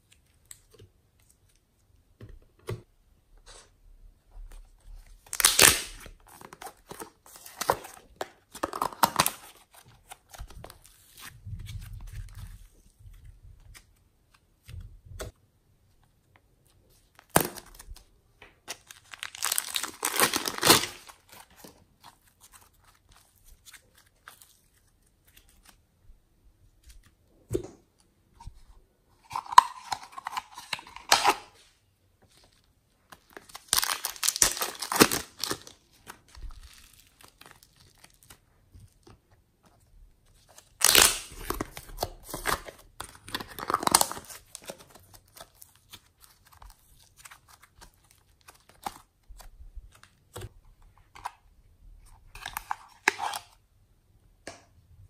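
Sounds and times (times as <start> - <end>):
plastic packets crinkling and tearing: 5.2 - 13.0, 17.1 - 25.8, 32.6 - 39.1, 40.3 - 50.5.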